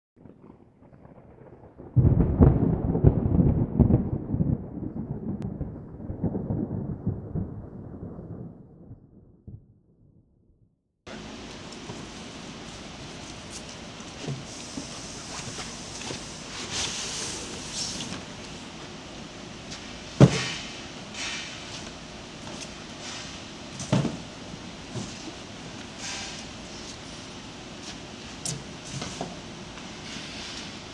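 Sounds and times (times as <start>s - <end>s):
deep rumble with crackle: 0.2s - 10.8s.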